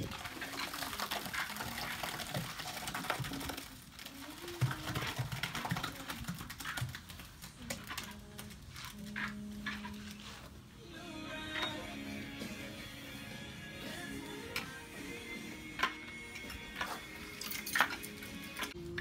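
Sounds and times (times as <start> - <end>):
wet plaster pouring from wheelbarrow: 0.0 - 9.4.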